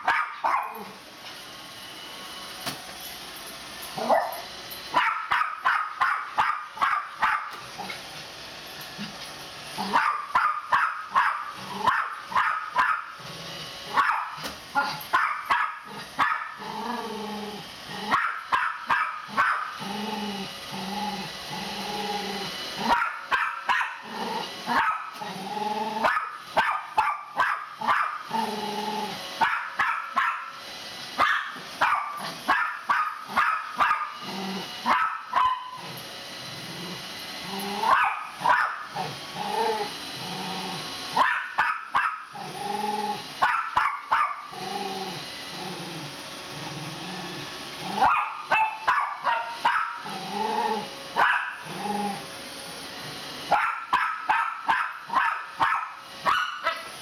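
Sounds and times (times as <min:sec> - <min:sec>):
dog barking: 0:00.0 - 0:00.9, 0:04.0 - 0:07.6, 0:09.8 - 0:13.1, 0:13.9 - 0:16.6, 0:18.1 - 0:19.7, 0:22.8 - 0:24.0, 0:24.7 - 0:25.1, 0:26.0 - 0:28.2, 0:29.4 - 0:30.5, 0:31.2 - 0:34.2, 0:34.8 - 0:35.8, 0:37.8 - 0:38.8, 0:41.2 - 0:42.2, 0:43.4 - 0:44.4, 0:48.0 - 0:50.0, 0:51.2 - 0:51.6, 0:53.5 - 0:56.9
dog growling: 0:11.6 - 0:11.9, 0:15.9 - 0:18.2, 0:19.8 - 0:23.0, 0:24.0 - 0:26.1, 0:28.3 - 0:29.2, 0:34.2 - 0:34.8, 0:35.8 - 0:38.0, 0:39.0 - 0:40.9, 0:42.3 - 0:43.2, 0:44.5 - 0:48.1, 0:50.0 - 0:50.9, 0:51.6 - 0:52.3.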